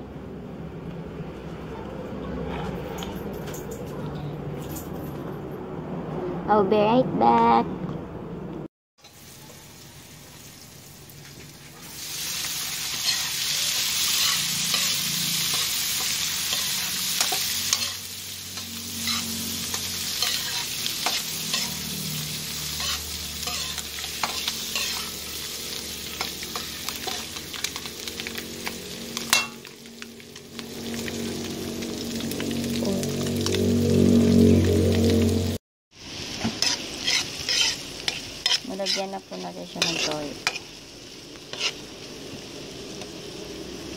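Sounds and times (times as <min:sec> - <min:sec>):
eggs sizzling in oil: 0:09.0 - 0:43.9
metal spatula scraping pan: 0:12.5 - 0:27.8, 0:29.2 - 0:29.6, 0:36.5 - 0:40.7, 0:41.5 - 0:41.9.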